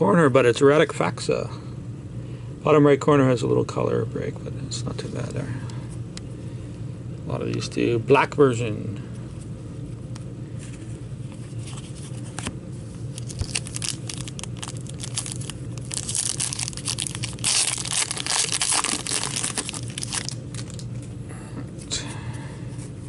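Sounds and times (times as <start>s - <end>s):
cards rustling and clicking: 10.7s - 20.9s
foil wrapper tearing and crinkling: 13.1s - 20.9s.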